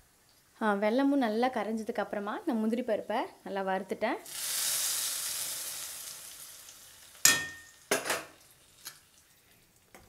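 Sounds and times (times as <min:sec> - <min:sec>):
food sizzling: 0:04.2 - 0:10.0
metal spoon clanking against pan: 0:07.2 - 0:09.0.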